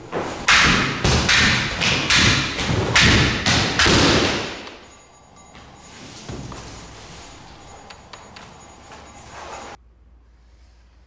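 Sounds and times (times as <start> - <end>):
footsteps thudding on wooden floor: 5.5 - 7.2.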